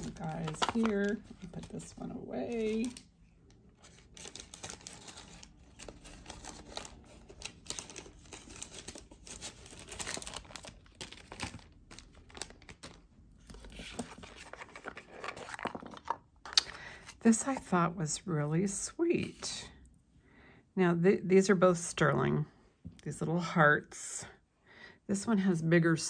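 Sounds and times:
wrapping rustling and crinkling: 0:00.0 - 0:17.6.

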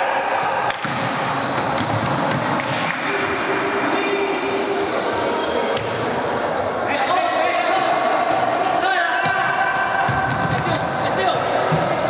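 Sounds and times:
sports hall background noise: 0:00.0 - 0:12.0
shoes squeaking on wooden court: 0:00.2 - 0:02.0, 0:10.2 - 0:12.0.

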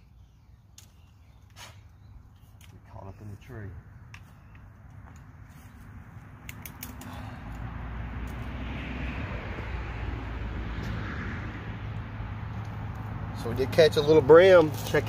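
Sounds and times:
vehicle passing on road: 0:04.7 - 0:15.0.

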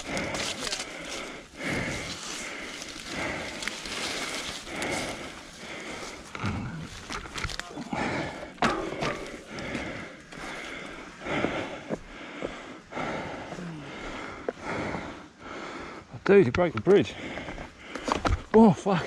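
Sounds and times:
person panting: 0:00.0 - 0:16.1, 0:17.0 - 0:18.5
footsteps on wooden boardwalk: 0:08.6 - 0:15.0, 0:17.1 - 0:18.8.

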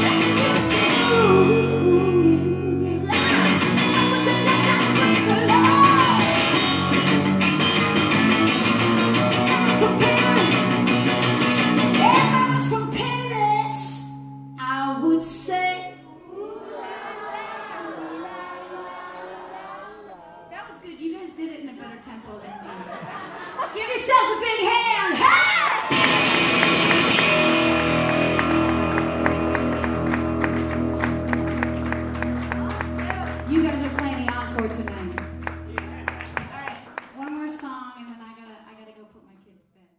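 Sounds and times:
woman singing: 0:00.0 - 0:06.4, 0:09.4 - 0:11.3, 0:11.9 - 0:17.2
rock band holding a chord: 0:00.0 - 0:12.9, 0:25.9 - 0:36.4
electric guitar: 0:00.0 - 0:16.1, 0:25.2 - 0:36.8
claps keeping time: 0:25.7 - 0:38.6.

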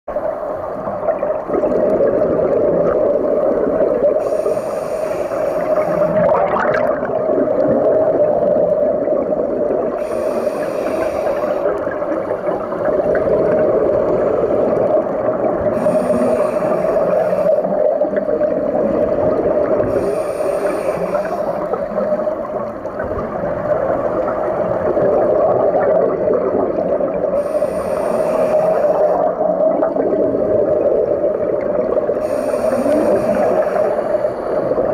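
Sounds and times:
underwater drone: 0:00.1 - 0:34.9
bubbling: 0:00.2 - 0:04.4, 0:05.2 - 0:34.9
diver breathing through regulator: 0:04.2 - 0:06.4, 0:10.0 - 0:11.8, 0:15.6 - 0:18.0, 0:19.7 - 0:22.4, 0:27.4 - 0:29.4, 0:32.2 - 0:34.9.

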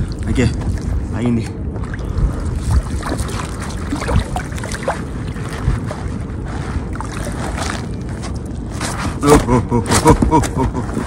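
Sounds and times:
small splashes and knocks: 0:00.0 - 0:08.5
water sloshing: 0:00.0 - 0:09.2
wind rumbling on microphone: 0:00.0 - 0:11.0.

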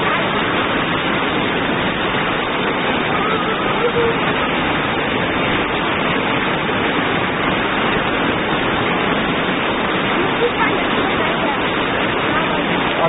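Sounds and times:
floodwater rushing: 0:00.0 - 0:13.0
heavy rain pouring: 0:00.0 - 0:13.0.

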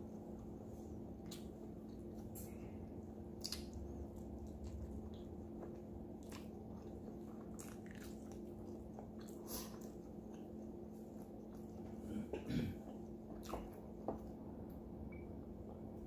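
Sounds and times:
faint steady hum: 0:00.0 - 0:16.0
person chewing: 0:01.0 - 0:12.1, 0:12.8 - 0:14.2
wet mouth clicks and smacks: 0:03.4 - 0:08.5.

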